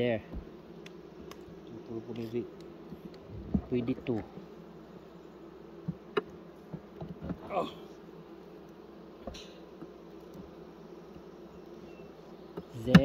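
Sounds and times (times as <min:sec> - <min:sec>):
honeybees buzzing: 0:00.0 - 0:13.0
hive frames knocking: 0:05.8 - 0:07.5, 0:12.5 - 0:13.0.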